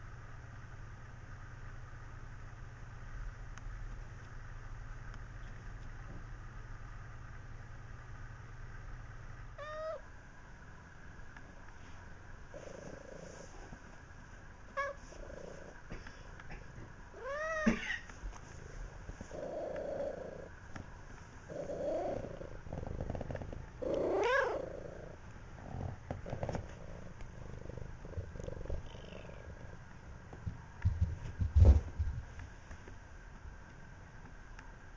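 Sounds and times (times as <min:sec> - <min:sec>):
cat yowling: 0:09.6 - 0:10.0, 0:17.2 - 0:18.0, 0:23.8 - 0:24.8.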